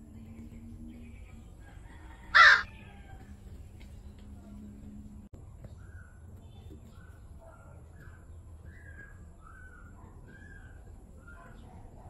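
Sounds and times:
bird calling: 2.3s - 2.7s.

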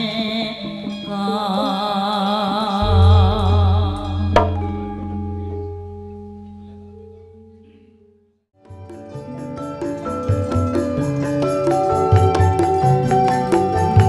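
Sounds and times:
person singing: 0.0s - 6.3s
deep gong: 2.8s - 8.1s
metallophones: 2.8s - 8.2s.

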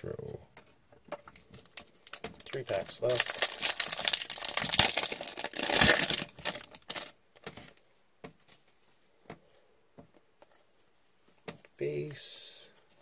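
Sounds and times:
foil pack crinkling: 1.5s - 7.2s.

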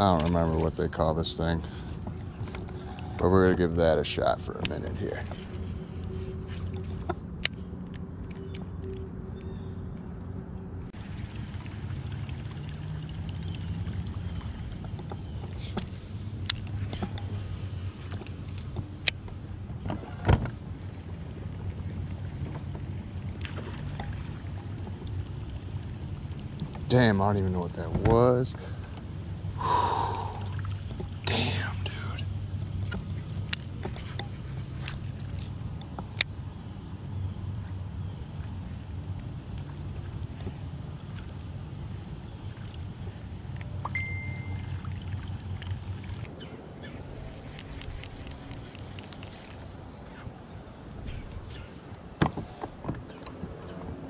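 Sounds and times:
light irregular clicks: 4.5s - 5.4s
water trickling: 10.9s - 19.9s, 20.5s - 27.8s, 28.6s - 36.2s, 38.2s - 54.0s
low rumble: 46.2s - 54.0s.

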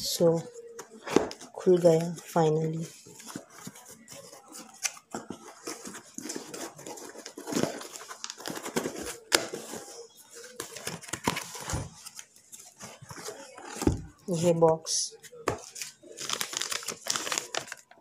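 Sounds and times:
cardboard box rustling and scraping: 2.4s - 11.9s.

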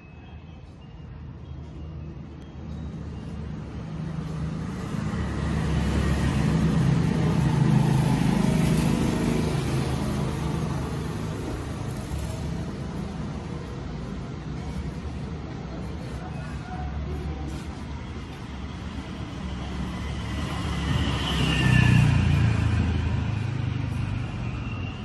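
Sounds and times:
passing road vehicle rumble: 2.2s - 25.0s.

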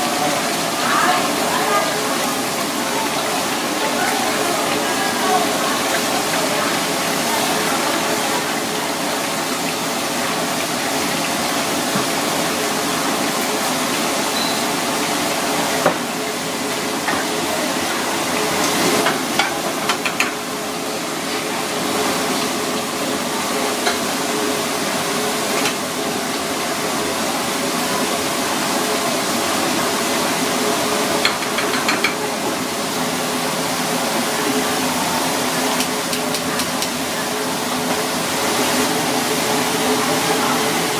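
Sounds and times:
cooking hiss: 0.0s - 40.9s
utensils clinking on metal pans: 31.2s - 32.3s.

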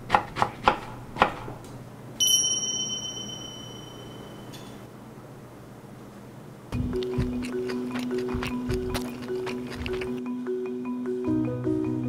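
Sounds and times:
bright bell-like ding: 2.2s - 4.8s.

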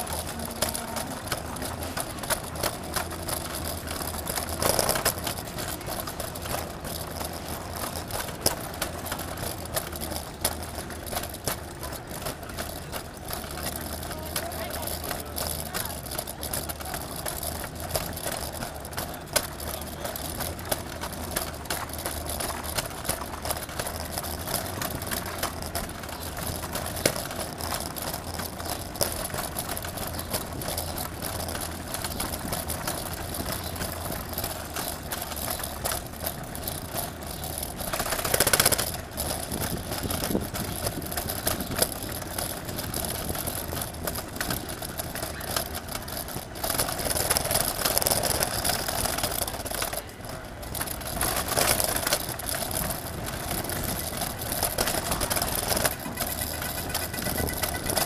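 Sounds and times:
city street traffic: 0.0s - 58.0s.

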